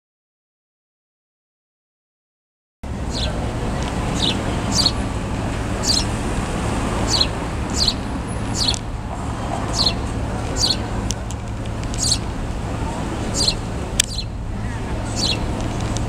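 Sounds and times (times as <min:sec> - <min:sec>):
low background rumble: 0:02.8 - 0:16.0
sparrow chick chirping: 0:03.1 - 0:05.2, 0:05.8 - 0:06.2, 0:06.9 - 0:08.9, 0:09.6 - 0:11.0, 0:11.8 - 0:12.3, 0:13.3 - 0:16.0.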